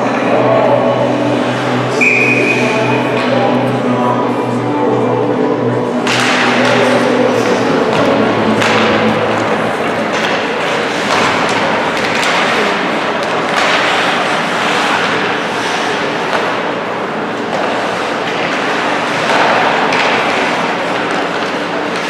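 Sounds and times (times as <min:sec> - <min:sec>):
crowd din: 0:00.0 - 0:22.0
hockey sticks and puck clacking: 0:05.9 - 0:22.0
skates scraping ice: 0:05.9 - 0:22.0.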